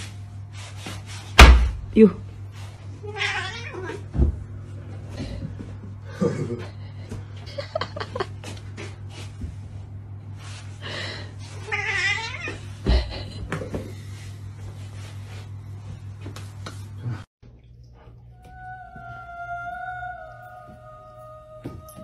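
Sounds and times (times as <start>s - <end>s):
cat meowing: 3.0s - 4.0s, 11.7s - 12.6s.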